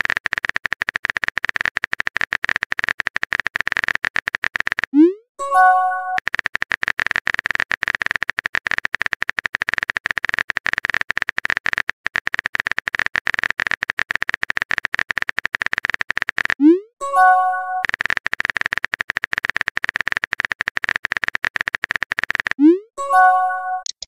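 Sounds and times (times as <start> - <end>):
multi-note message chime: 5.4 - 6.2, 23.0 - 23.9
keyboard tapping clicks: 5.6 - 24.0.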